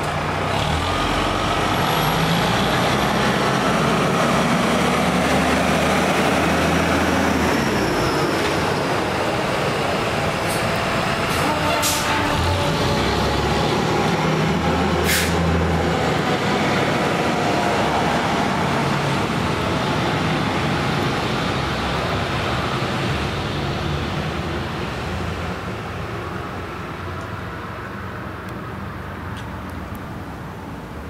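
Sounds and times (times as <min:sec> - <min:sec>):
fire engine driving by: 0:00.0 - 0:31.0
short sharp hiss: 0:15.0 - 0:15.4.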